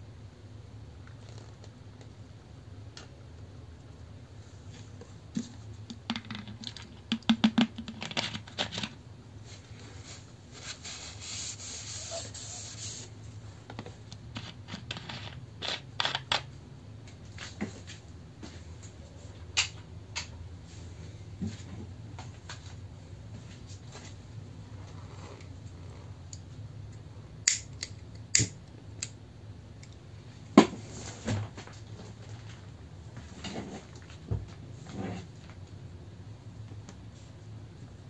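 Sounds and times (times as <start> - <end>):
tissue rubbing across desktop: 9.4 - 13.2.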